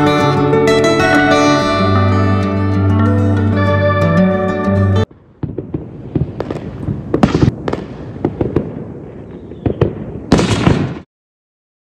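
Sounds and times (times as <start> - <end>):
fireworks crackling: 5.2 - 11.0
fireworks bangs: 5.2 - 11.1.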